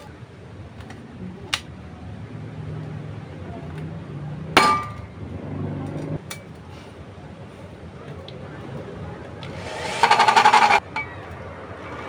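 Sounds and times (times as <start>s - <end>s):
hammer striking metal: 4.6s - 5.0s.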